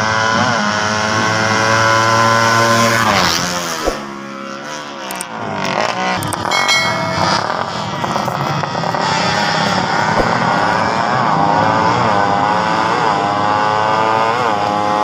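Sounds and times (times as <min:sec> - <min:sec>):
racing motorcycle engine revving: 0:08.9 - 0:15.0.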